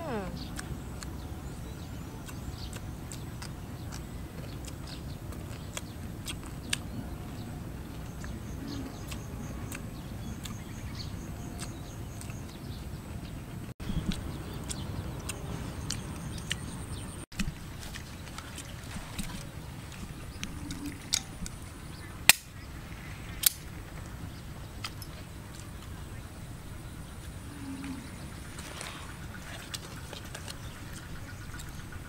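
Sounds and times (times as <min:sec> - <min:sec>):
chewing and mouth clicks: 0:00.0 - 0:13.2, 0:13.8 - 0:21.6, 0:28.6 - 0:32.0
steady low rumble: 0:00.0 - 0:32.0.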